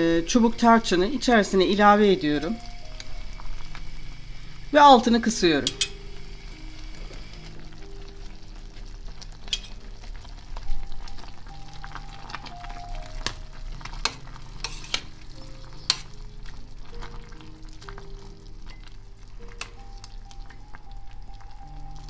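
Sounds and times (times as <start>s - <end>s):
soft background music: 0.0s - 22.0s
syrup bubbling and hissing: 0.0s - 22.0s
metal spoon clinking against pot: 5.6s - 6.0s, 9.4s - 9.8s, 14.0s - 15.2s, 15.8s - 16.2s.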